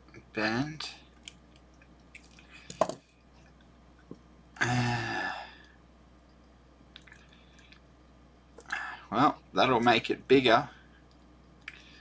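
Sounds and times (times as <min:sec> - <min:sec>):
person grunting with effort: 0:04.6 - 0:05.4.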